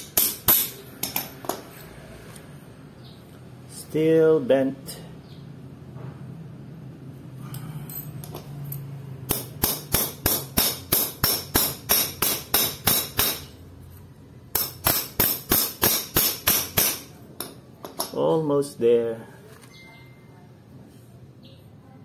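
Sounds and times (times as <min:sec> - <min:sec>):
wrench striking metal cog: 0:00.0 - 0:01.6, 0:07.9 - 0:13.6.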